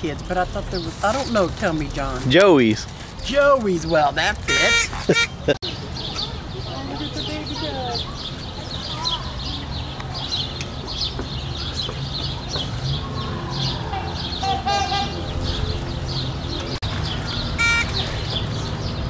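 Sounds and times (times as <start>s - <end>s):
small birds chirping: 0.0s - 19.0s
loud bird call: 4.5s - 5.5s, 13.1s - 15.6s, 17.3s - 18.5s.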